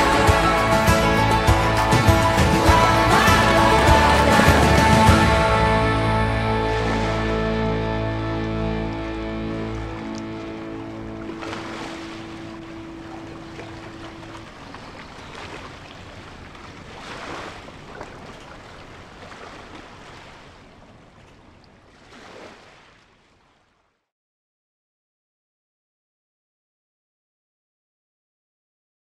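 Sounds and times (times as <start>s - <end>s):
background music chord: 0.0s - 14.1s
sea waves washing in: 0.0s - 23.7s.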